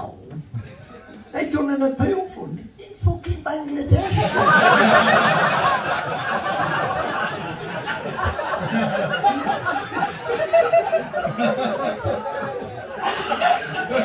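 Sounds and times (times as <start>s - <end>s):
audience laughing: 4.0s - 14.0s.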